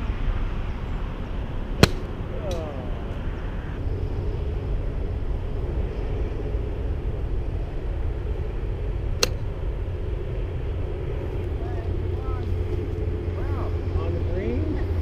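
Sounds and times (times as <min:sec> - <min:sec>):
steady low rumble: 0:00.0 - 0:15.0
golf club hitting ball: 0:01.8 - 0:02.7, 0:09.2 - 0:09.5.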